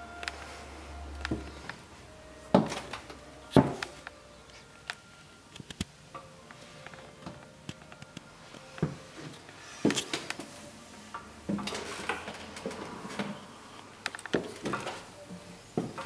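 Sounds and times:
footsteps on indoor stairs: 1.3 - 1.8, 2.5 - 4.0, 8.6 - 10.5, 11.5 - 13.4, 14.3 - 16.0.

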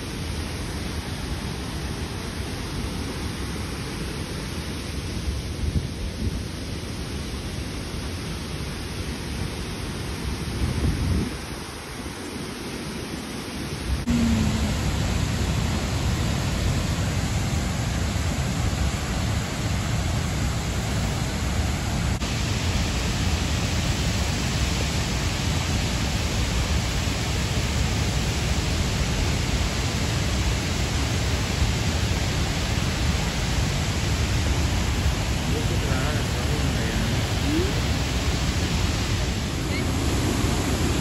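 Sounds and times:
waterfall rushing: 11.6 - 41.0.

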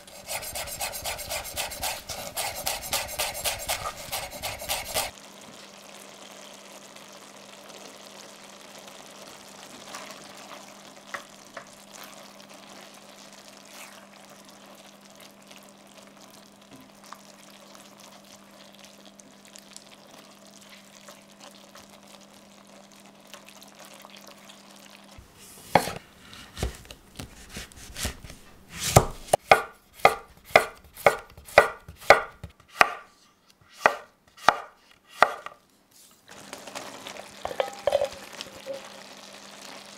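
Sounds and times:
knife chopping on wooden board: 0.3 - 5.1, 25.7 - 33.1, 33.8 - 35.6.

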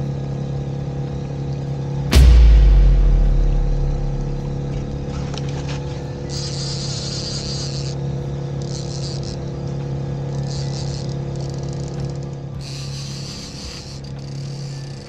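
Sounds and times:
loud low boom: 2.1 - 6.1.

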